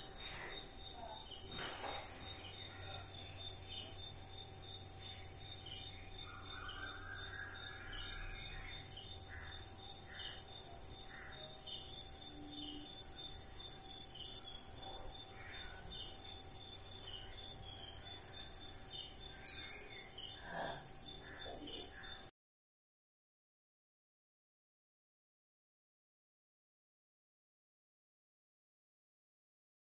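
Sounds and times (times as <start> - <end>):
insects trilling: 0.0 - 22.3
repeating insect chirp: 0.0 - 22.3.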